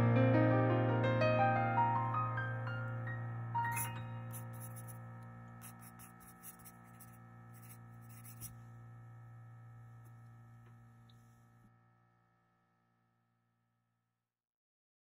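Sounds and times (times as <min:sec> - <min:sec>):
sustained piano chord: 0:00.0 - 0:12.4
pencil scratching on paper: 0:03.7 - 0:05.0, 0:05.6 - 0:08.6.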